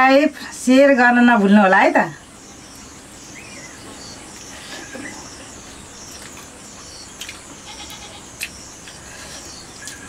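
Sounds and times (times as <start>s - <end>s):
insects chirping: 0.1s - 10.0s
animal bleat: 7.6s - 8.3s.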